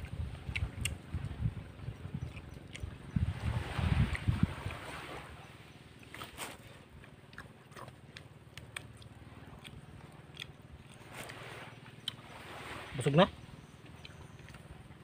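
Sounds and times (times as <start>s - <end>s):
people chewing: 0.0s - 1.0s, 2.2s - 3.0s, 6.0s - 11.4s, 13.8s - 14.7s.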